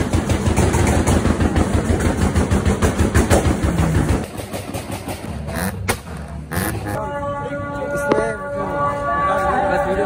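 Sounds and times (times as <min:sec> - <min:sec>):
car engine revving: 0:05.2 - 0:07.0.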